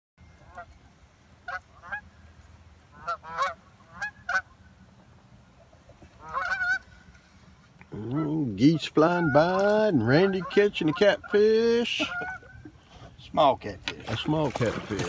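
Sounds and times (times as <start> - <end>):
geese honking: 1.4 - 2.2, 2.9 - 4.6, 6.1 - 7.1, 8.0 - 13.1.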